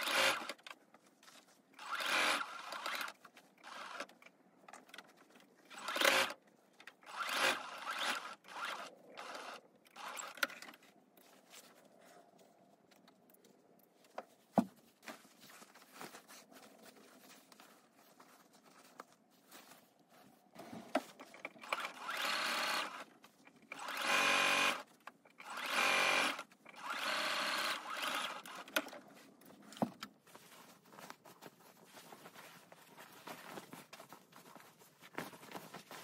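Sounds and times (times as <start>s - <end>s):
sewing machine stitching: 0.0s - 0.6s, 1.8s - 4.2s, 5.7s - 6.4s, 7.0s - 10.8s, 21.1s - 29.0s
fabric handling: 0.7s - 1.9s, 10.8s - 21.7s, 28.6s - 36.0s.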